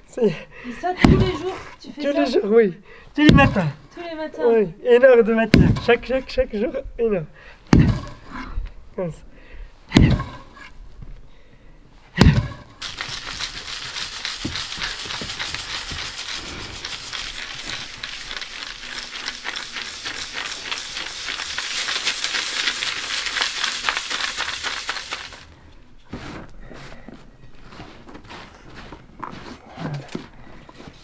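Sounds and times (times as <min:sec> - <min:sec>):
wooden club thudding on clay earth: 0:01.0 - 0:01.5, 0:03.2 - 0:03.8, 0:05.5 - 0:06.2, 0:07.7 - 0:08.3, 0:09.9 - 0:10.5, 0:12.2 - 0:12.7
earth crackling through a sieve: 0:12.8 - 0:25.6.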